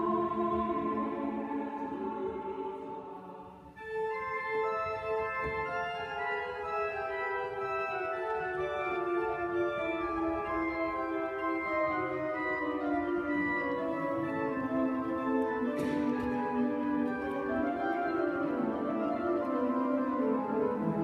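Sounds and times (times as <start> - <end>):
choir singing: 0.0 - 3.8
church organ chords: 3.7 - 21.0.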